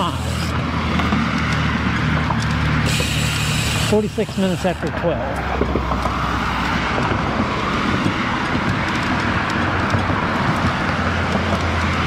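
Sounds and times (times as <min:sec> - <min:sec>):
cars passing on road: 0:00.0 - 0:12.0.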